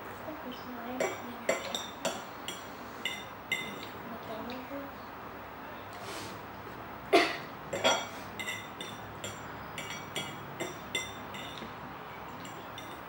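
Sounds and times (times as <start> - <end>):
fork clinking against bowl: 7.8 - 11.7.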